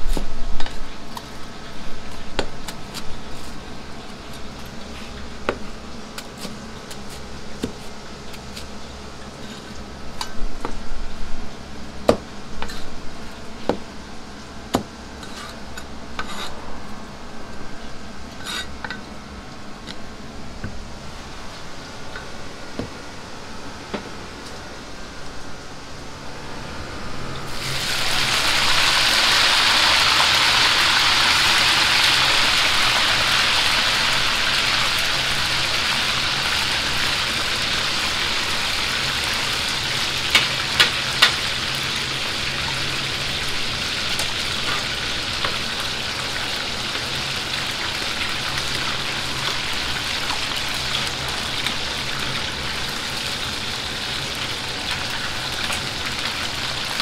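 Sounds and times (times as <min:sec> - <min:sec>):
chicken deep-frying in oil: 0:00.0 - 0:15.7, 0:27.4 - 0:57.0.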